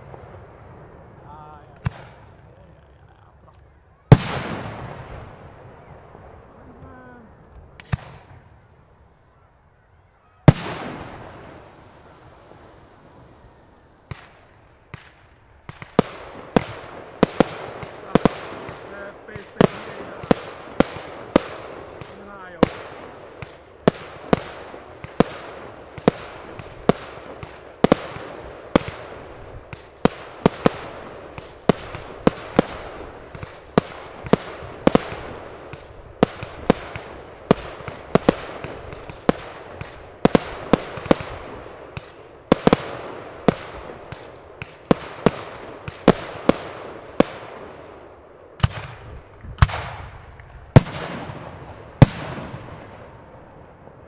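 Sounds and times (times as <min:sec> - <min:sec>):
deep firework booms: 0:00.0 - 0:09.0, 0:10.5 - 0:54.0
firework shells bursting: 0:14.0 - 0:54.0.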